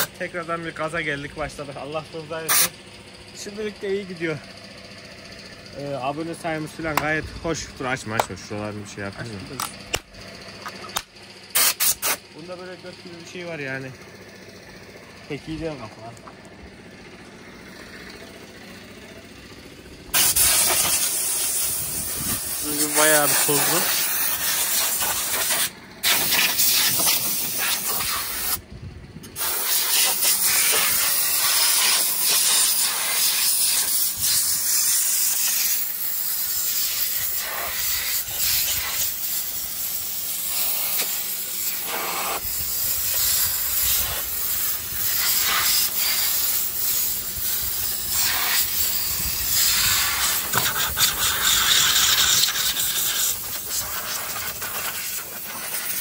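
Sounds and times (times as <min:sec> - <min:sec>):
compressed air hissing: 0:02.4 - 0:02.8, 0:11.5 - 0:12.3, 0:20.1 - 0:28.6, 0:29.3 - 0:56.0.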